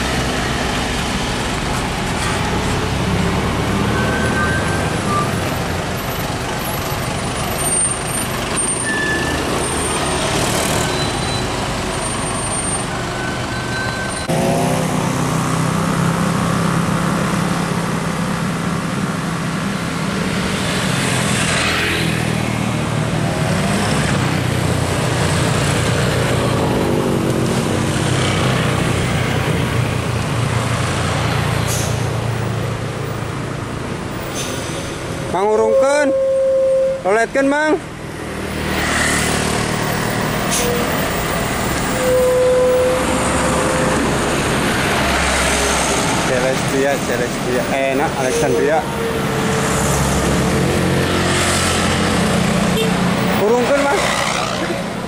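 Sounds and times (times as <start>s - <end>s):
heavy diesel traffic: 0.0s - 55.0s.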